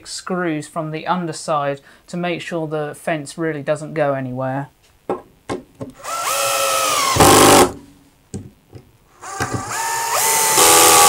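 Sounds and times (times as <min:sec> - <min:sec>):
cordless drill motor whine: 0:06.0 - 0:07.7, 0:09.2 - 0:11.0.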